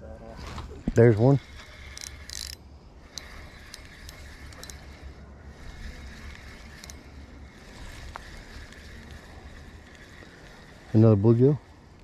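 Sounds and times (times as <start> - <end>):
faint reel clicks: 0.6 - 12.0
fishing reel whirring: 0.9 - 12.0.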